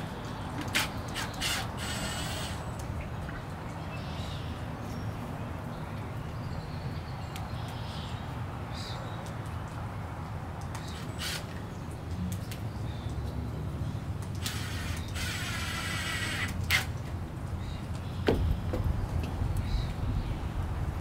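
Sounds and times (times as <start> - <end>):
birds calling: 0.0 - 9.8, 10.6 - 20.6
wooden post knocking and scraping: 18.2 - 19.2.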